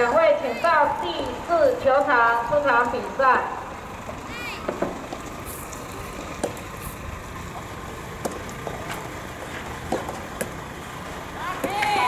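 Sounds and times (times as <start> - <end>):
steady outdoor rumble: 0.0 - 12.0
tennis balls struck by rackets: 6.3 - 6.7, 8.1 - 9.1, 9.8 - 10.6.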